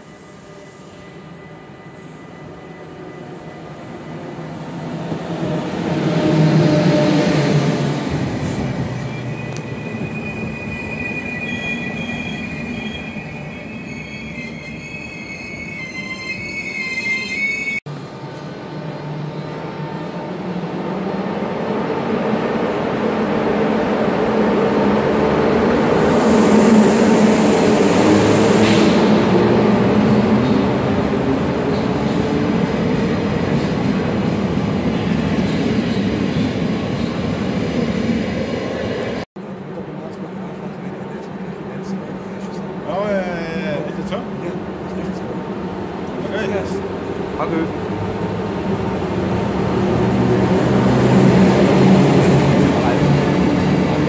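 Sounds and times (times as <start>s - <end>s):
train rumbling past: 0.0s - 54.0s
high wavering wheel squeal: 8.9s - 17.8s.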